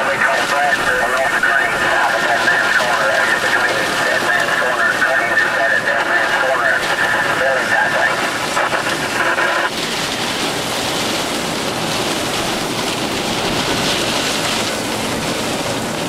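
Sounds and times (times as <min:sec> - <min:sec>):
tinny radio voice: 0:00.0 - 0:09.7
heavy rain hissing: 0:00.0 - 0:16.0.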